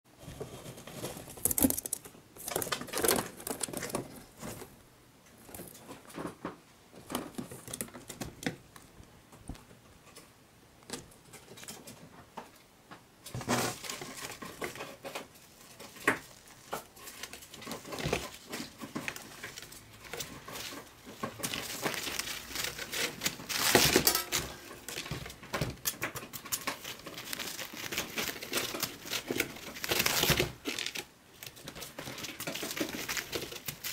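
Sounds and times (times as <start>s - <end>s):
tissue paper crinkling and ripping: 21.4s - 25.1s, 26.7s - 33.9s.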